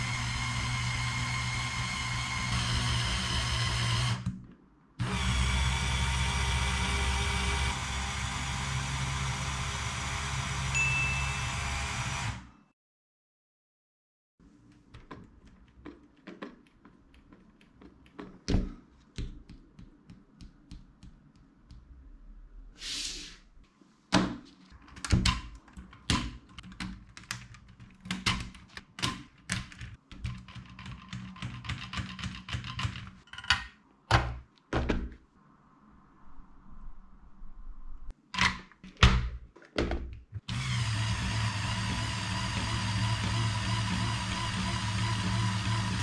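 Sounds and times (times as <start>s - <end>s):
plastic parts clicking and knocking: 14.6s - 21.9s, 24.2s - 35.2s, 38.3s - 40.4s
short hiss: 22.8s - 23.4s.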